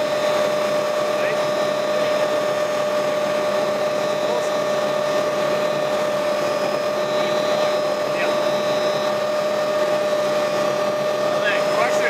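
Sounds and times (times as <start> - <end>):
helicopter engine and rotor drone: 0.0 - 12.0
high whine: 0.0 - 12.0.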